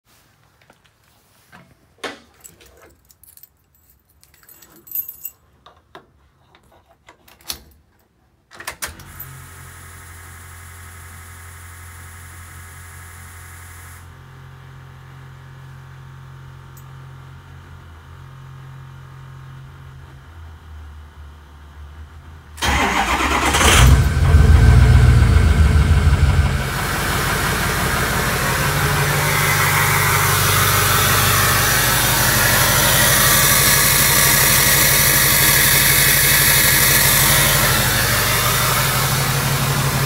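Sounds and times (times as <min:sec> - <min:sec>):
keys jangling in ignition: 0:02.4 - 0:05.5
fuel pump humming: 0:25.9 - 0:40.0.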